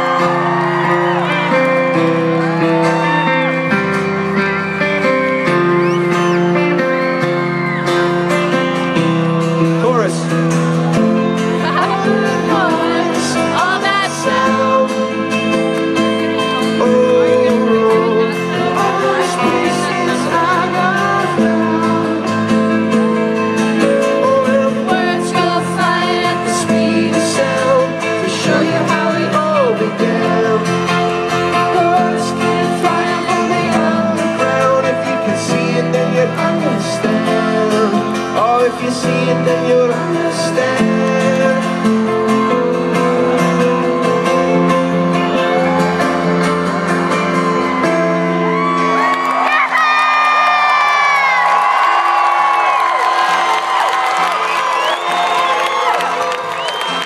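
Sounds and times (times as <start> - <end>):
acoustic guitar strumming: 0.0 - 49.8
keyboard chords: 0.0 - 57.0
person singing: 10.8 - 49.6.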